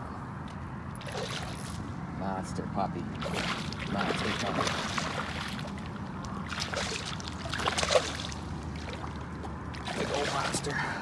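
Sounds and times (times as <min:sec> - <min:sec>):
fish splashing in water: 0:01.0 - 0:01.8, 0:03.2 - 0:10.7.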